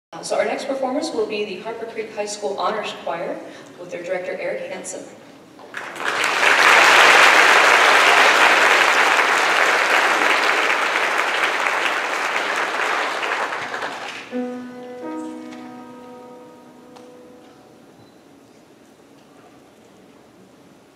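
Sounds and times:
audience applauding: 5.6s - 16.2s
grand piano playing: 14.2s - 18.9s.

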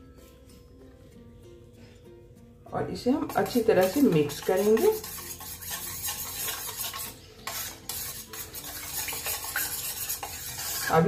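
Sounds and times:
metal spoon stirring in saucepan: 3.2s - 11.0s.

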